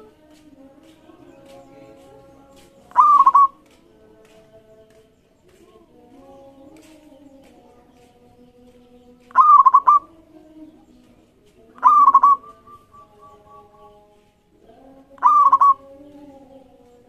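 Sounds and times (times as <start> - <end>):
dove cooing: 2.9 - 3.6, 9.3 - 10.4, 11.7 - 14.0, 15.1 - 16.2.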